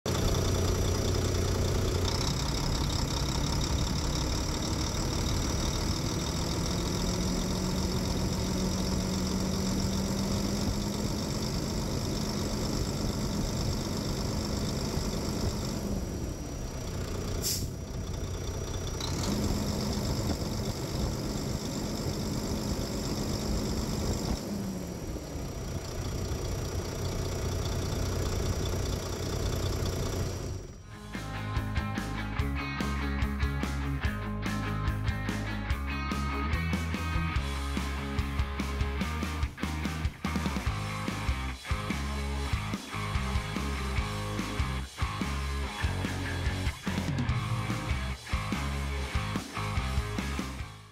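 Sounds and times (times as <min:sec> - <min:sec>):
truck diesel engine revving: 0:00.0 - 0:30.9, 0:34.9 - 0:50.8.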